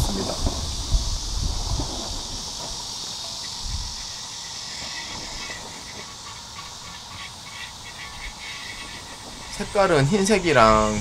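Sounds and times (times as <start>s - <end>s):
high insect hiss: 0.0s - 11.0s
brush scrubbing a griddle: 4.2s - 11.0s.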